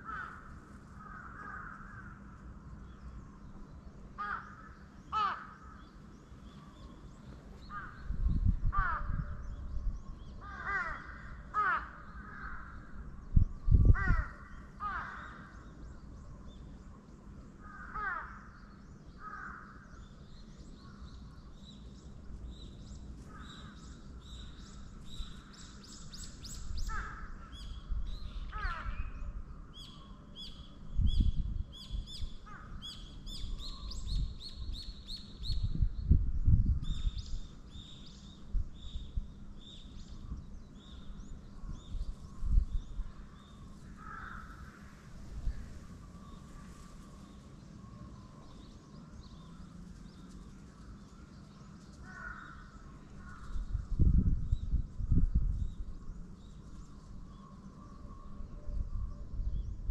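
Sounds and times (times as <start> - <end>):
crows cawing: 0.0 - 2.4, 4.2 - 5.9, 7.6 - 9.4, 10.4 - 13.0, 13.9 - 15.7, 17.6 - 18.6, 19.2 - 20.0, 23.2 - 24.0, 26.8 - 27.6, 28.5 - 29.2, 32.4 - 32.9, 43.7 - 45.1, 52.0 - 53.6
small birds chirping: 1.2 - 58.5.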